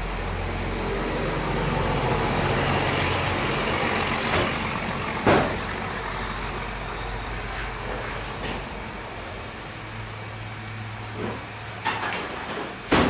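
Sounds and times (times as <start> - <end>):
workshop low hum: 0.0 - 13.0.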